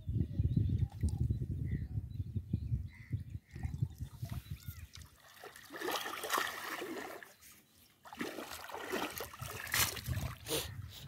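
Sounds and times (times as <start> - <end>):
water splashing and dripping: 3.5 - 7.3, 8.0 - 10.5.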